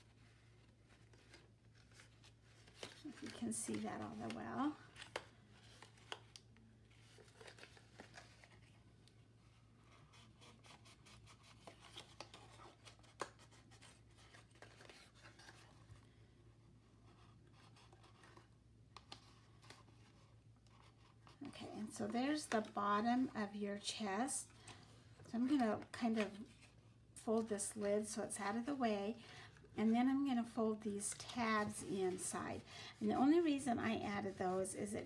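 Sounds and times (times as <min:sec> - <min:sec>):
low steady hum: 0:00.0 - 0:35.0
cardstock rustling and clicking: 0:00.8 - 0:08.7.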